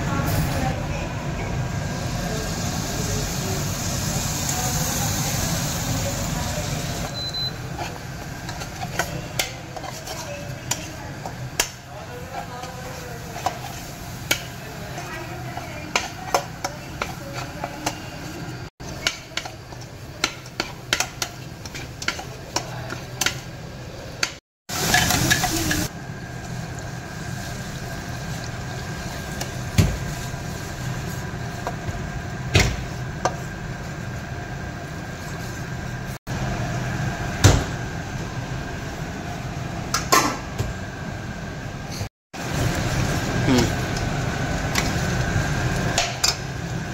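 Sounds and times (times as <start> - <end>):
spatula scraping a metal pan: 7.7 - 11.4.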